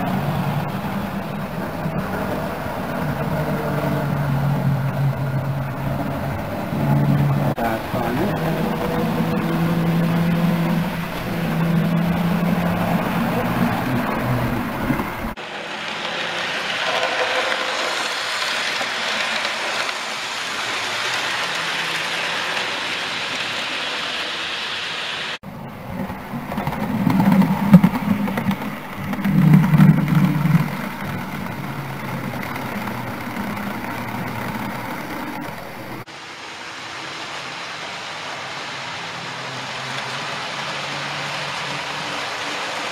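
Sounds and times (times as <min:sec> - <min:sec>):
electric motor hum: 0:00.0 - 0:22.8, 0:25.4 - 0:36.1
wheels rumbling on rails: 0:00.0 - 0:42.9.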